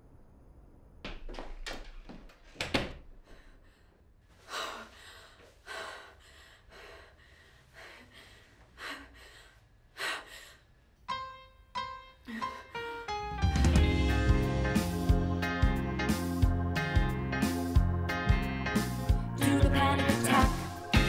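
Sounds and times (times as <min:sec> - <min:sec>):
music: 0:11.1 - 0:21.0.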